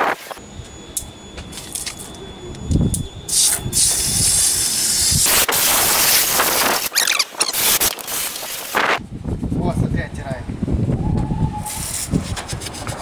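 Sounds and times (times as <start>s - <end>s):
spray can hissing: 3.3s - 9.0s.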